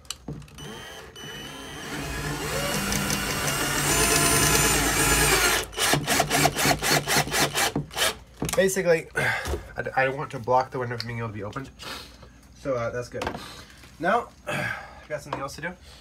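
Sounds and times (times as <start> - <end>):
cordless drill motor whining: 0.5 - 8.2
drill clutch clicking: 0.6 - 8.1.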